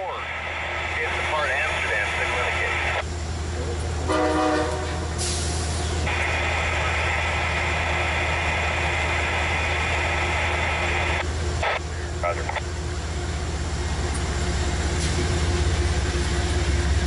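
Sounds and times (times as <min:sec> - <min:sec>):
low diesel hum: 0:00.0 - 0:17.0
air brakes hissing: 0:04.8 - 0:06.1
high-pitched whine: 0:05.7 - 0:17.0.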